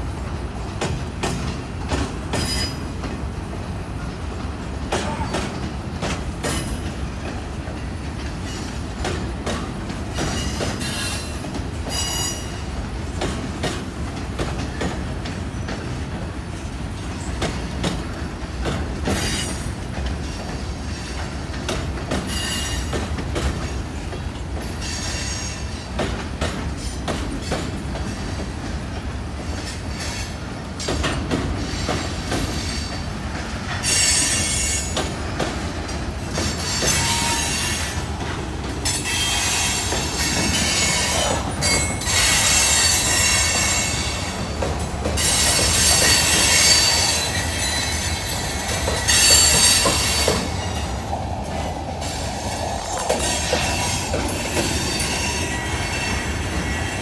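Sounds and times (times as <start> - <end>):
steel wheels rumbling on rail: 0.0 - 57.0
high-pitched wheel squeals: 45.2 - 48.5.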